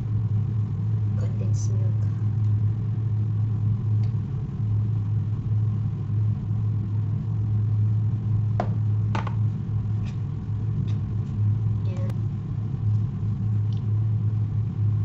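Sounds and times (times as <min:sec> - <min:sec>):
steady low hum: 0:00.0 - 0:15.0
sharp knocks: 0:08.6 - 0:09.4.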